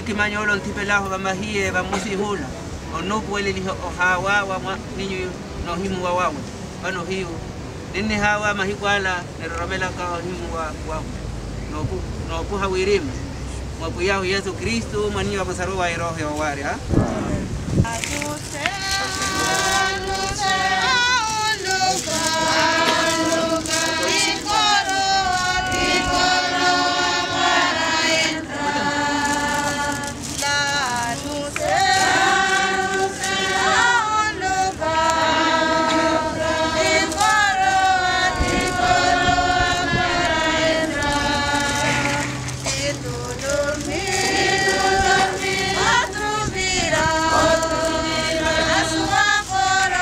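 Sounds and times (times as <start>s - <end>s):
choir singing: 18.4s - 50.0s.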